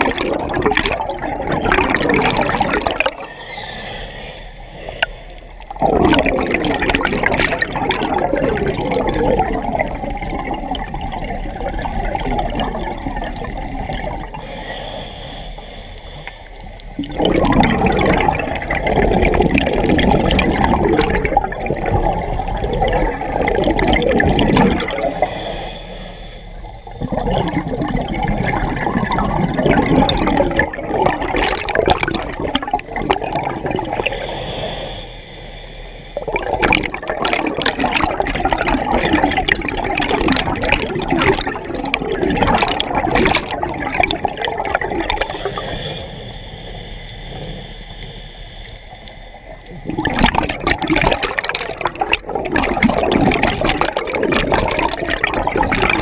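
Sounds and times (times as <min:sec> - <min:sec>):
exhaled bubbles underwater: 0:00.0 - 0:56.0
hissing regulator inhalations: 0:03.1 - 0:05.8, 0:14.2 - 0:17.0, 0:24.8 - 0:27.6, 0:32.4 - 0:36.8, 0:45.1 - 0:50.2.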